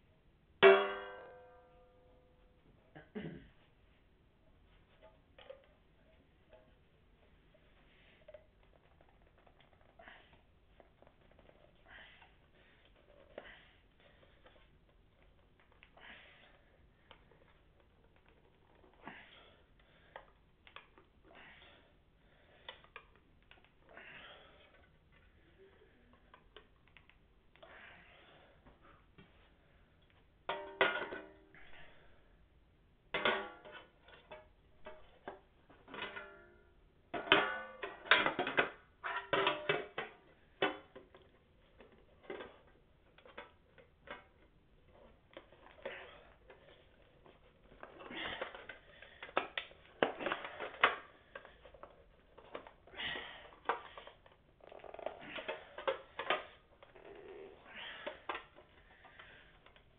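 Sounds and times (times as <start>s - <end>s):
frying pans knocking and scraping: 0.6s - 1.3s
metallic ring: 0.6s - 2.4s.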